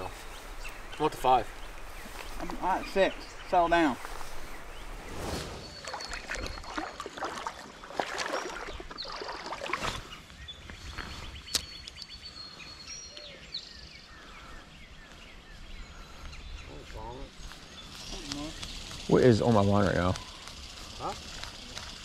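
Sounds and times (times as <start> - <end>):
high bird chirps: 0.3 - 7.1, 8.3 - 22.0
water splashing: 5.1 - 10.1.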